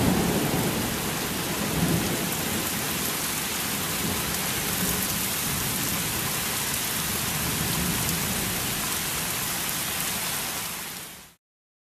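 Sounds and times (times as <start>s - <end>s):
heavy rain pouring: 0.0s - 11.4s.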